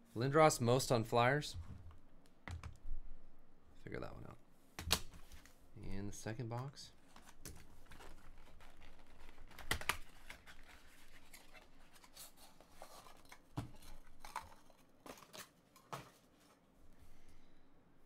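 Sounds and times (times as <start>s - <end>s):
plastic wrap crinkling and tearing: 7.2s - 12.3s.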